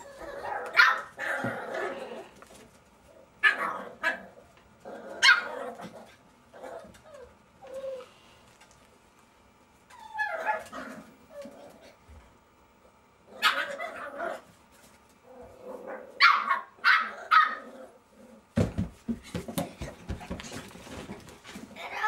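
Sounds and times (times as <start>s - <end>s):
puppies barking and yelping: 0.0s - 1.8s, 9.9s - 11.6s, 13.4s - 14.4s, 16.1s - 17.7s.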